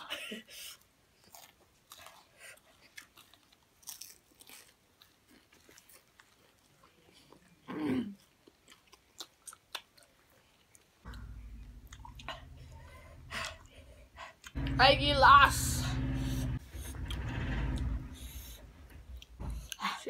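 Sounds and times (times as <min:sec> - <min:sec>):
chewing and crunching: 0:01.1 - 0:13.7.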